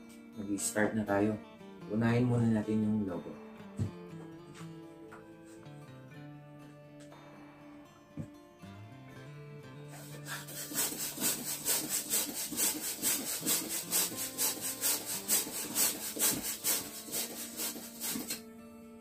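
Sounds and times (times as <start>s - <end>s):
balloon pump hissing air: 10.0s - 18.4s.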